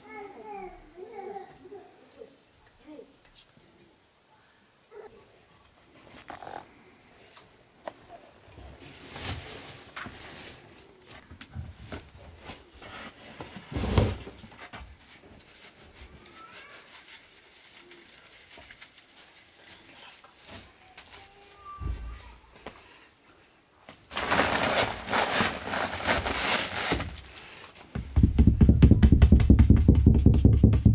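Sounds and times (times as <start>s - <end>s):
flour sifting through sieve: 15.0s - 20.8s, 24.1s - 27.9s.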